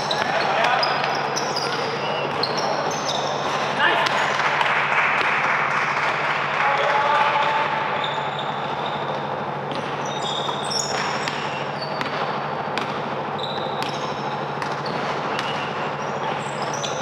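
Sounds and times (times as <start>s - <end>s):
sneakers squeaking on court: 0.0s - 4.2s, 8.0s - 17.0s
basketball bouncing: 9.7s - 15.9s.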